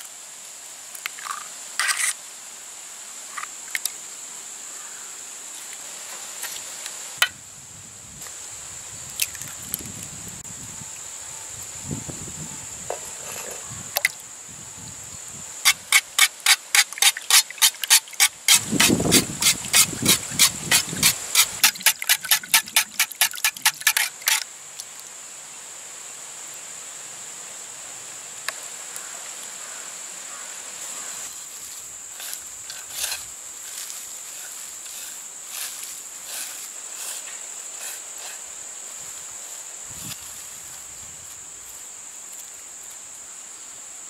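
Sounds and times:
high insect drone: 0:00.0 - 0:44.0
rustle of onions mixed by hand: 0:30.8 - 0:42.4.

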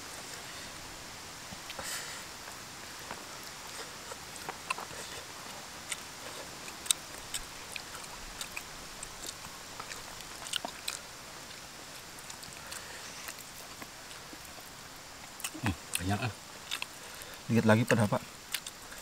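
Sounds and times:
faint steady hiss: 0:00.0 - 0:19.0
chewing and mouth smacks: 0:03.1 - 0:17.0, 0:18.4 - 0:19.0.

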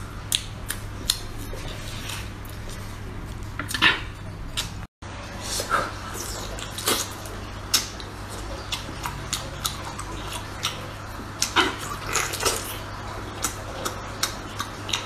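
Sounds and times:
wet chewing smacks and squelches: 0:06.0 - 0:15.0.

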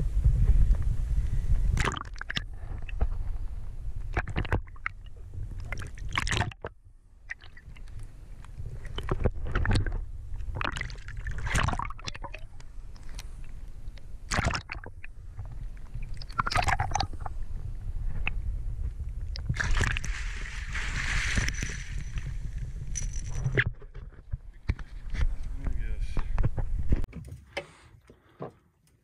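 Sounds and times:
muffled underwater rumble: 0:00.0 - 0:27.0
water gurgling: 0:01.8 - 0:03.0, 0:08.8 - 0:13.2, 0:14.3 - 0:17.4.

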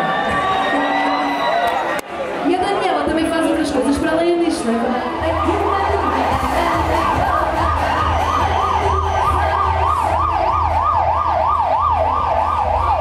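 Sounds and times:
siren in yelp mode: 0:05.0 - 0:13.0.

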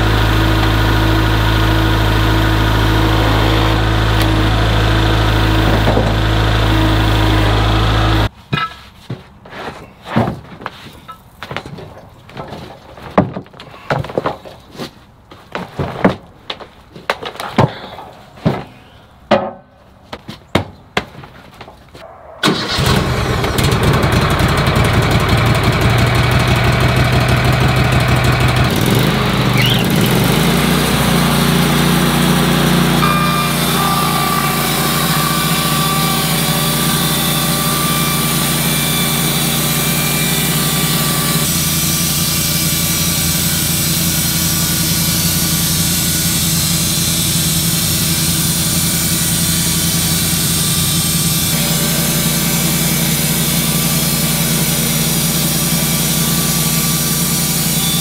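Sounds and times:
band saw cutting boards: 0:00.0 - 0:08.3, 0:22.5 - 0:58.0
sawmill engine running: 0:00.0 - 0:08.3, 0:22.4 - 0:58.0.

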